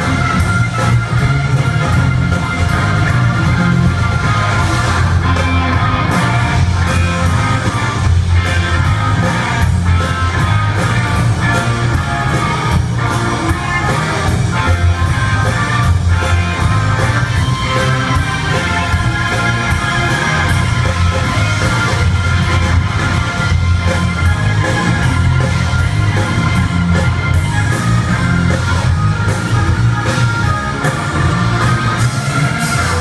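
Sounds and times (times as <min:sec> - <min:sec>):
drums: 0:00.0 - 0:33.0
electric guitars: 0:00.0 - 0:33.0
heavy bass line: 0:00.0 - 0:33.0
keyboards: 0:00.0 - 0:33.0.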